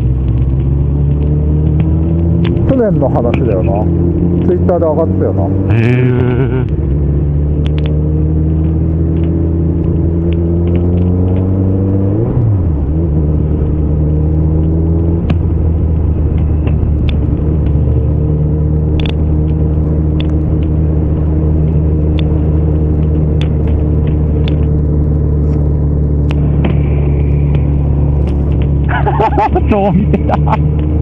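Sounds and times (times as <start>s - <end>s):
wind rumble: 0.0s - 31.0s.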